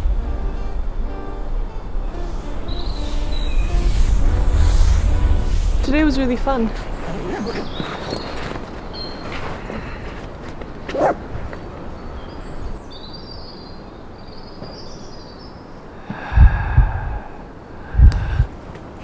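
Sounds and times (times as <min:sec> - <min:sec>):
small birds chirping: 0:02.0 - 0:05.2, 0:05.8 - 0:18.4.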